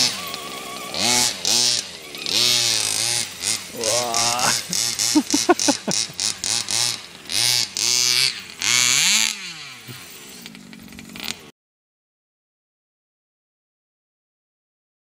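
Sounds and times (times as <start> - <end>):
two-stroke engine revving: 0.0 - 11.5.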